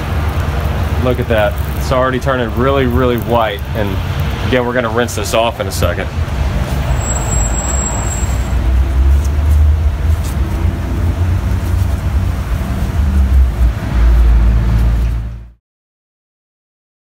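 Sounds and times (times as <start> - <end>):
low outdoor rumble: 0.0 - 15.6.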